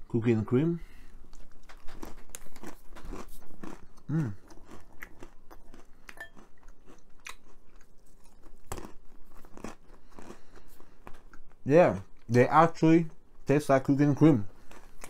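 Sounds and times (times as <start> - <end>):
crunching and chewing pretzels: 0.4 - 15.0.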